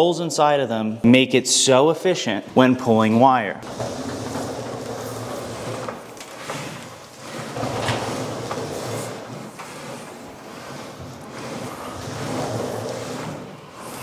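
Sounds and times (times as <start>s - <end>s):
cable scraping against wood: 3.6s - 14.0s.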